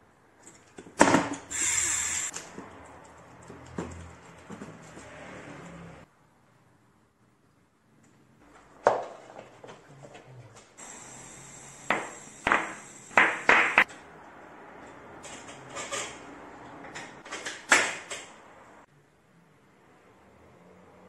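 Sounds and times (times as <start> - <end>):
air hissing into tyre: 1.5 - 2.4, 10.8 - 13.8.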